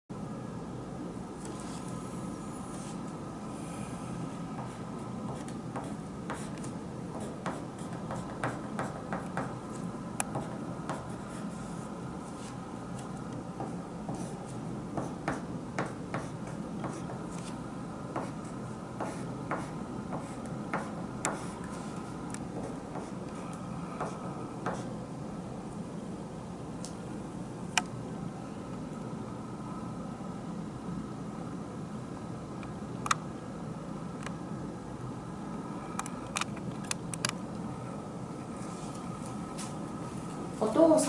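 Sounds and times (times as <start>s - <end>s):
pencil scratching on paper: 4.6s - 9.5s, 14.1s - 17.6s, 18.2s - 21.9s.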